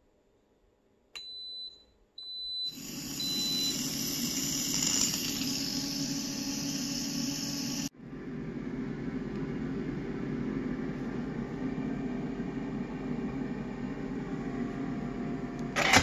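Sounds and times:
pressure cooker beeping: 0:01.2 - 0:07.9
steam valve hissing: 0:02.8 - 0:07.9.

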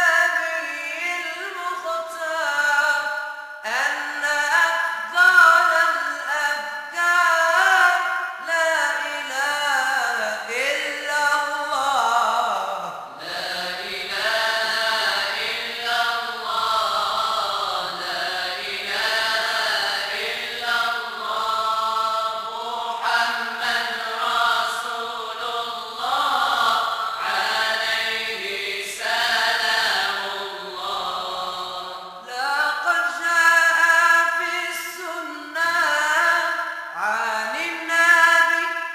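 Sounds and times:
ornamented solo chanting: 0:00.0 - 0:38.9
group of voices chanting: 0:13.0 - 0:32.3.

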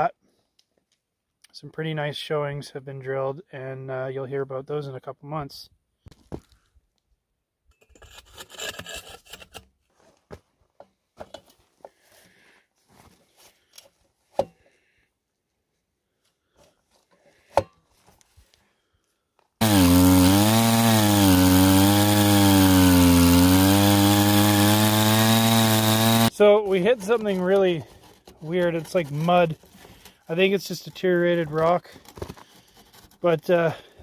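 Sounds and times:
two-stroke core drill engine: 0:19.6 - 0:30.2.

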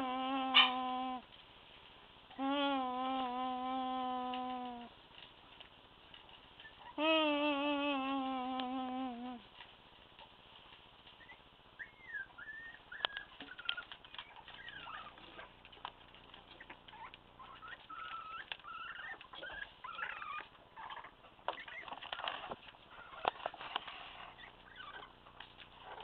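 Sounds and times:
puppies whining and squeaking: 0:06.2 - 0:07.1, 0:11.1 - 0:15.7, 0:16.3 - 0:26.0
puppies scuffling: 0:09.5 - 0:20.6.

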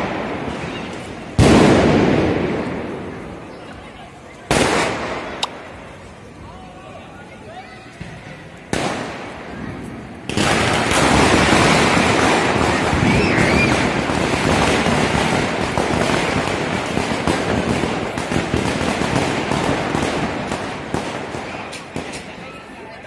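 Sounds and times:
firecrackers crackling: 0:00.0 - 0:06.4, 0:07.2 - 0:23.0.

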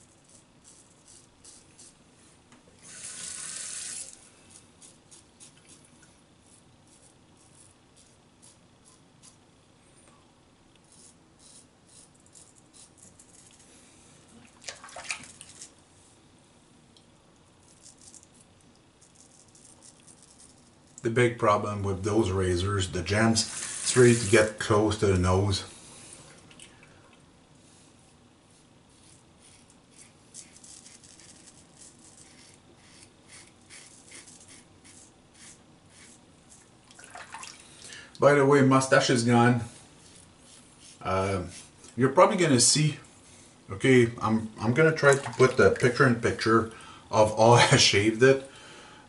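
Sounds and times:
razor scraping stubble: 0:00.0 - 0:02.0, 0:02.8 - 0:09.4, 0:10.8 - 0:13.7, 0:17.6 - 0:22.2, 0:23.1 - 0:25.1, 0:28.5 - 0:36.7.

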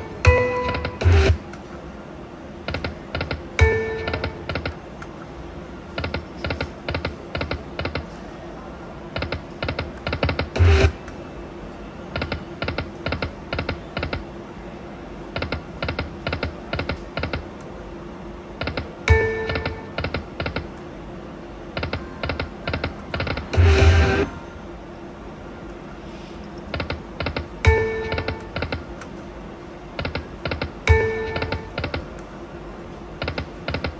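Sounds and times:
slot machine reels clicking: 0:00.0 - 0:01.5, 0:02.7 - 0:04.8, 0:18.6 - 0:20.7, 0:26.7 - 0:28.9, 0:30.0 - 0:32.1.

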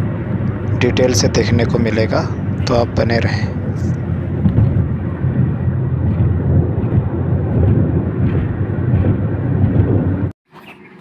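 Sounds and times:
vehicle road and engine noise: 0:00.0 - 0:11.0.

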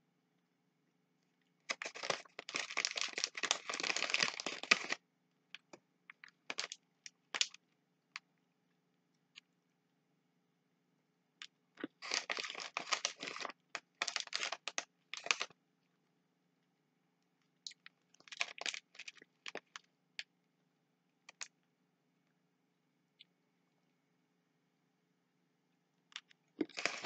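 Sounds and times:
candy bag crinkling: 0:01.6 - 0:05.0, 0:05.6 - 0:07.6, 0:11.8 - 0:15.5, 0:17.7 - 0:19.8, 0:21.3 - 0:21.5, 0:26.2 - 0:27.0.

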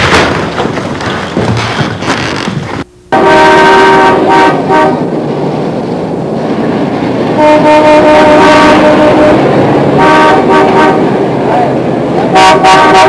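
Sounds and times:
constant noisy wash: 0:03.9 - 0:13.0.

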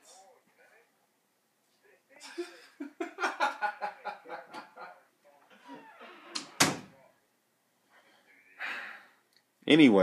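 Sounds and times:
man laughing: 0:02.2 - 0:05.0.

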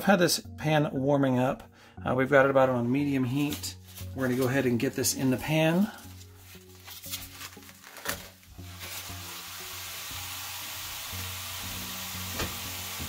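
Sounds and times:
meat sizzling in a pan: 0:08.5 - 0:13.0.

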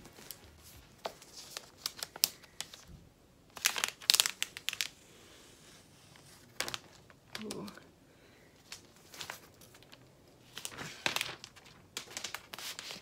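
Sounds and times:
plastic film crinkling: 0:00.0 - 0:05.0, 0:06.0 - 0:07.8, 0:08.6 - 0:13.0.

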